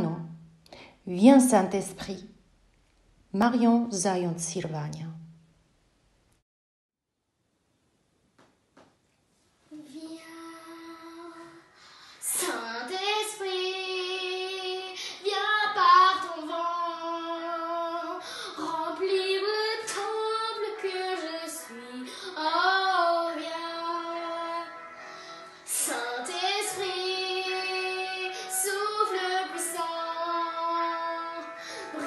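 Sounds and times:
girl singing: 9.7s - 32.0s.

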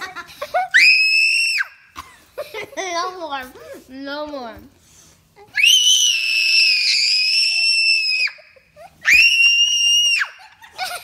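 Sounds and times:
girl screaming: 5.5s - 10.3s.

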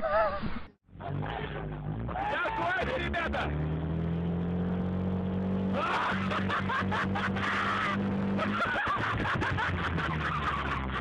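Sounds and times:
car engine revving: 0.9s - 11.0s
people laughing: 5.8s - 11.0s.

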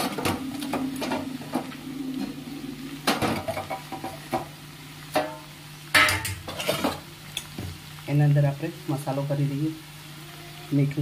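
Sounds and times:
steady low hum: 0.0s - 5.9s.

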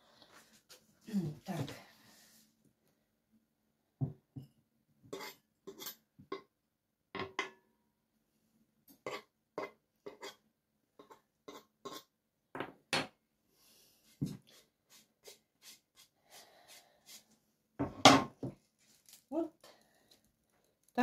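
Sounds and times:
fork scraping cutting board: 5.1s - 6.0s, 9.0s - 10.4s, 11.0s - 12.1s.

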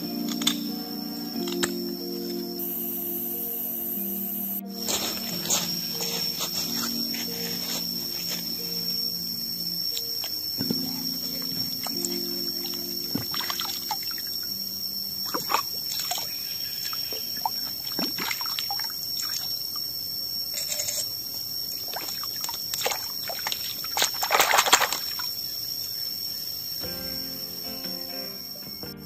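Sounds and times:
stream water sloshing and trickling: 9.9s - 14.6s, 15.2s - 19.9s, 21.7s - 25.5s
stick splashing through water: 21.9s - 25.3s.

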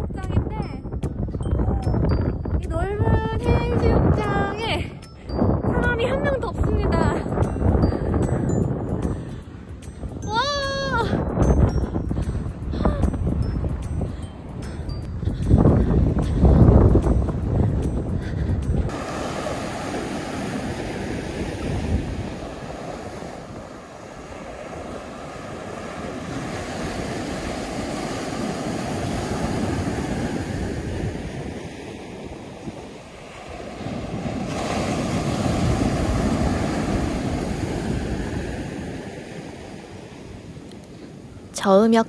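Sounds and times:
wind on microphone: 0.0s - 42.0s
waves breaking on beach: 16.2s - 42.0s.

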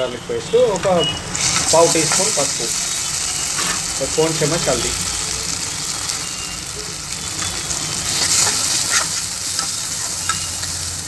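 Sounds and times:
onions sizzling in oil: 1.3s - 11.0s
spatula stirring and scraping: 1.4s - 4.0s, 5.1s - 11.0s.

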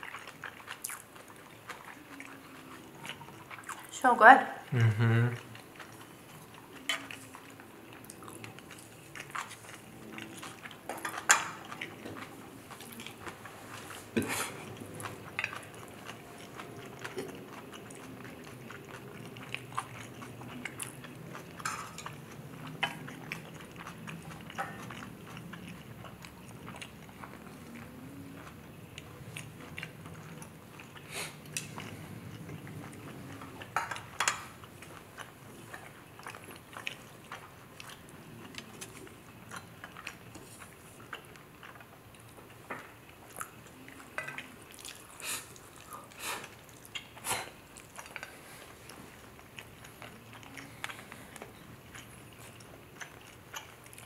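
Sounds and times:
close chewing of noodles: 0.0s - 4.0s, 4.6s - 54.0s.

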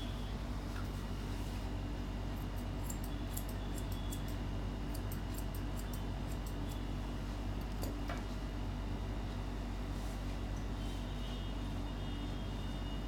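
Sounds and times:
steady low hum: 0.0s - 13.0s
scissors snipping dog hair: 2.4s - 6.9s, 7.6s - 8.0s.

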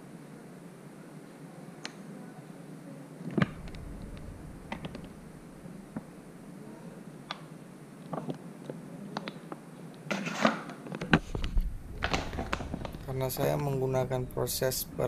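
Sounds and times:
plastic bottle rustling: 11.2s - 13.2s.

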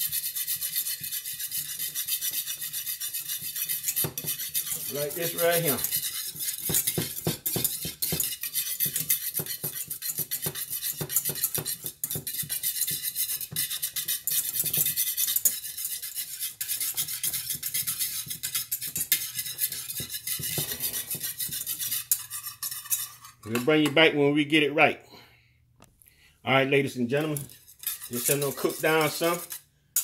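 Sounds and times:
utensil scraping saucepan: 0.0s - 24.3s, 26.6s - 30.0s.

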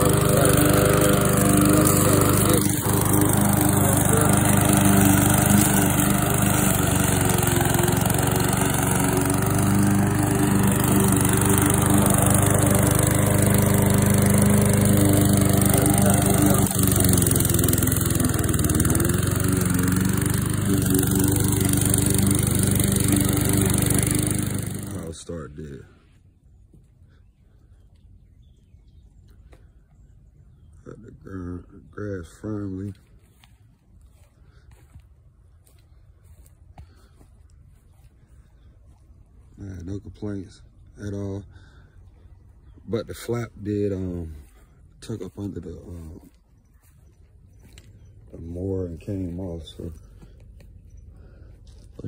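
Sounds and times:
lawn mower engine running: 0.0s - 25.3s, 40.6s - 52.0s.

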